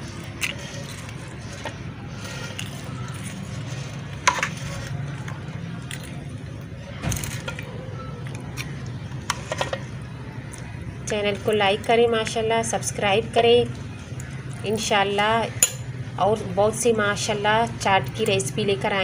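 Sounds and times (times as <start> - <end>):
spoon scraping and clinking dish: 0.4 - 5.0, 9.3 - 9.9.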